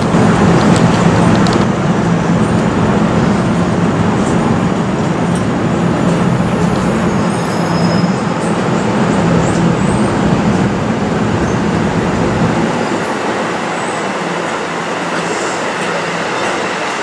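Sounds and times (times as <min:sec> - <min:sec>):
train wheels rumbling on rails: 0:00.0 - 0:17.0
high wheel squeals: 0:05.8 - 0:08.6.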